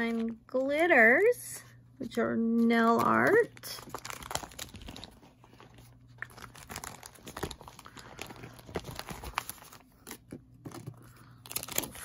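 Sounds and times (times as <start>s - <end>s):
plastic crinkling: 3.2s - 12.0s.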